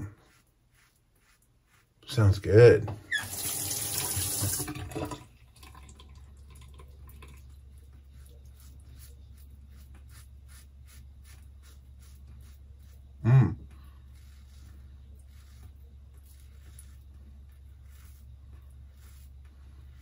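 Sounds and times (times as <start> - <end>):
razor scraping stubble: 0.0 - 2.5, 8.2 - 13.2, 14.0 - 20.0
low steady hum: 4.2 - 20.0.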